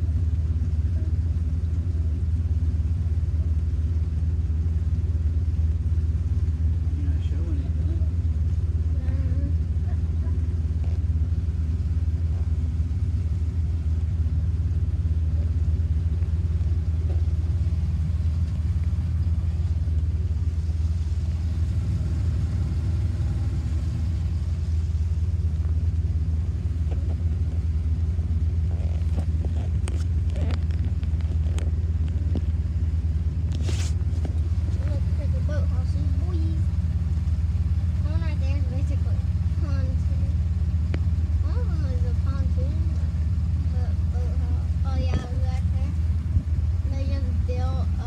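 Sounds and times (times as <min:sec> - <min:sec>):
boat motor droning: 0:00.0 - 0:48.0.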